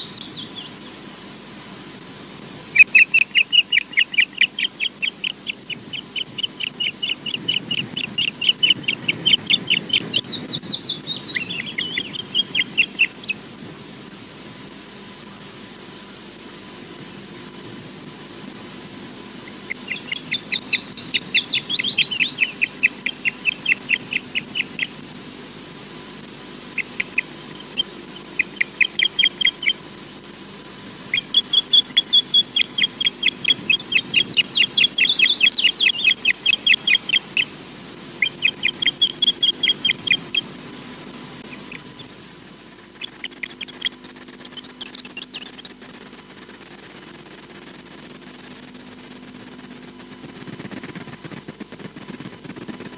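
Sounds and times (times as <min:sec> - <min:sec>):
osprey whistled piping calls: 0:00.0 - 0:01.0, 0:02.7 - 0:13.5, 0:19.4 - 0:25.0, 0:26.7 - 0:30.2, 0:31.0 - 0:37.6, 0:38.2 - 0:40.6, 0:41.4 - 0:42.1, 0:42.9 - 0:45.8.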